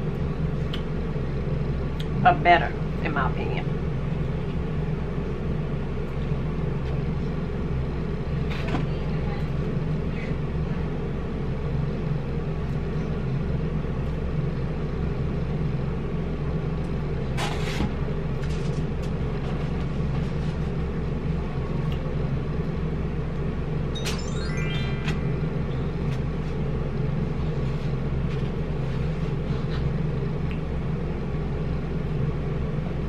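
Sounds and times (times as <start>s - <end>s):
low rumbling drone: 23.8s - 28.1s.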